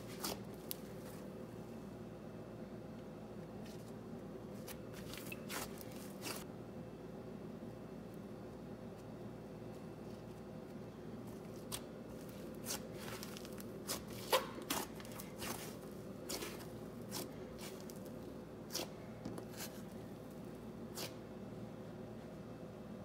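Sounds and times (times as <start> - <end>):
slime crackling and squishing: 0.0 - 1.2, 4.6 - 6.4, 11.2 - 21.2
faint steady hum: 0.0 - 23.0.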